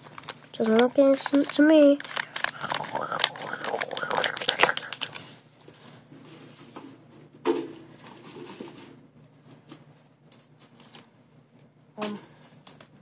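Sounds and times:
paper crinkling: 0.0s - 5.8s.

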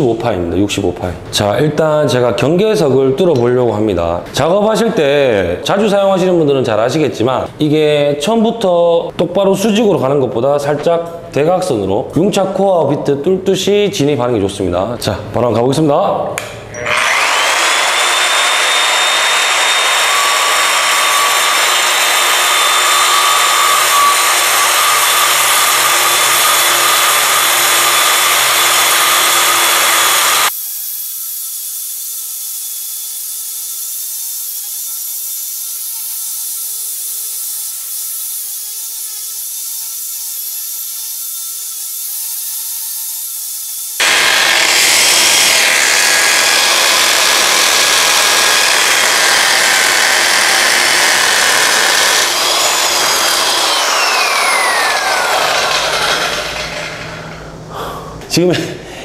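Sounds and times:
motor spinning down: 16.8s - 30.5s, 44.0s - 57.5s
core drill grinding concrete: 16.8s - 57.6s.

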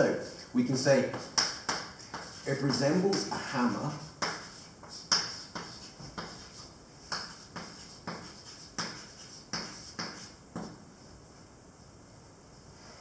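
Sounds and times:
chalk tapping on a blackboard: 0.1s - 10.8s.

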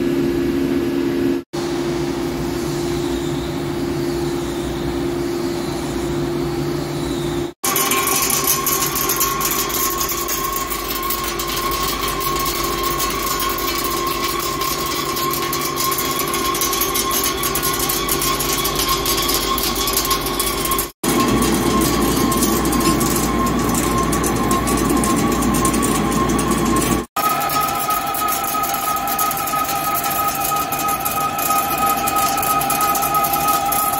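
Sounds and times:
high whine: 0.0s - 33.9s
fine crackle of cutting metal: 7.6s - 33.9s
lathe machine hum: 7.6s - 33.9s.

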